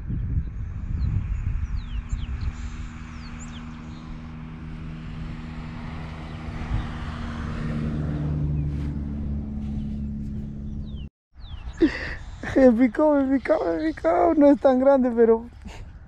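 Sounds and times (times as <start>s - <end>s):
engine humming: 1.8s - 16.0s
bird chirps: 9.6s - 12.7s.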